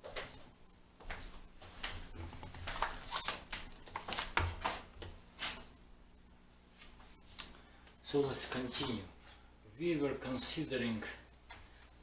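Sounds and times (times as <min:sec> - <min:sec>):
rustling and scraping: 0:01.1 - 0:05.8.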